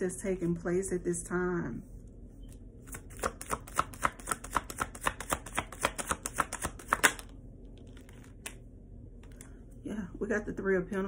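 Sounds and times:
cards being shuffled: 0:02.8 - 0:08.6.

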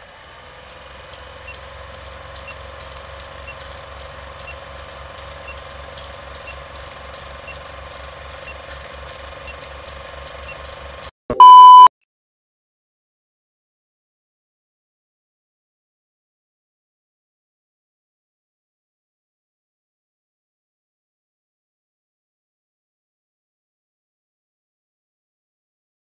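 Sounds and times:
film projector clatter: 0:00.0 - 0:11.1
loud steady beep: 0:11.3 - 0:11.9.

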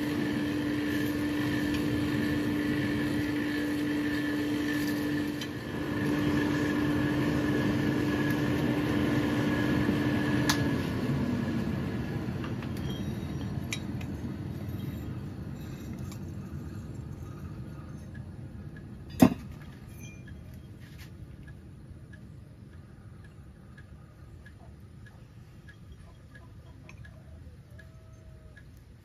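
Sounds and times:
forge air blower running: 0:00.0 - 0:15.6
axe head clanking on anvil: 0:19.1 - 0:20.2.

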